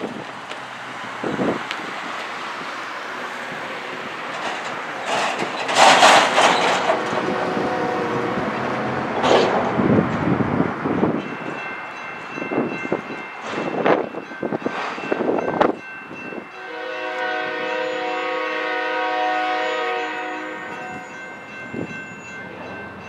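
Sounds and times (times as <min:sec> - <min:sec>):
crossing warning bell ringing: 0:03.6 - 0:23.0
train horn: 0:06.7 - 0:09.7, 0:16.5 - 0:21.3.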